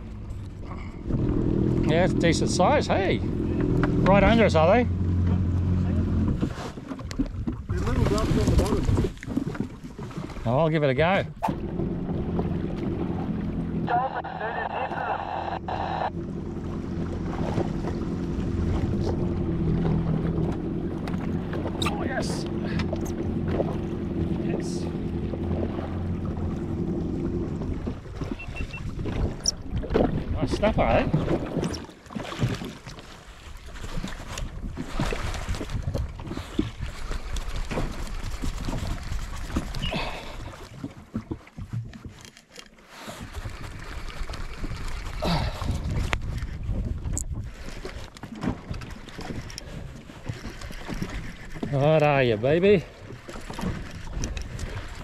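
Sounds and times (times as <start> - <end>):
jet ski engine idling: 0.0 - 6.4, 11.4 - 29.6
water lapping against jet ski: 0.0 - 55.0
wind buffeting microphone: 16.7 - 31.8, 44.6 - 47.7
wind noise on microphone: 34.5 - 40.0, 44.6 - 48.0.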